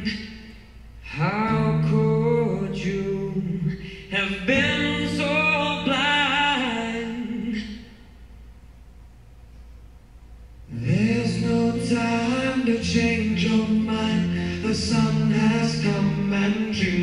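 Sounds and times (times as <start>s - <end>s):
person singing: 1.0s - 8.0s, 10.7s - 17.0s.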